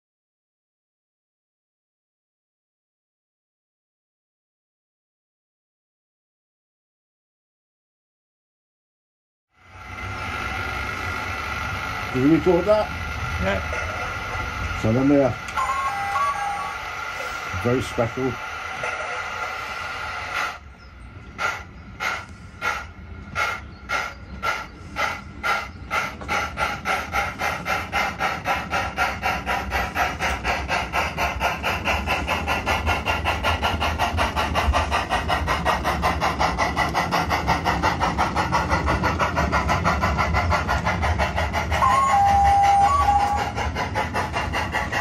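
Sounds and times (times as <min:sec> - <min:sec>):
model train steam chuffs: 0:09.6 - 0:45.0
train whistle blast: 0:41.8 - 0:43.4.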